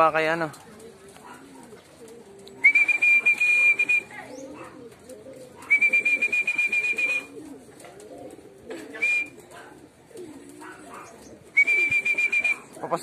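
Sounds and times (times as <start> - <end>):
pigeons cooing: 0.0 - 13.0
trilling whistle blasts: 2.7 - 4.1, 5.7 - 7.3, 11.6 - 12.6.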